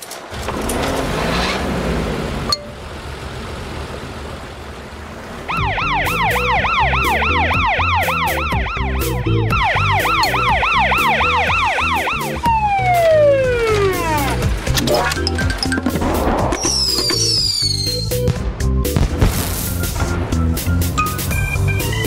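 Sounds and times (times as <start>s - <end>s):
cartoon siren yelping: 5.5s - 14.3s.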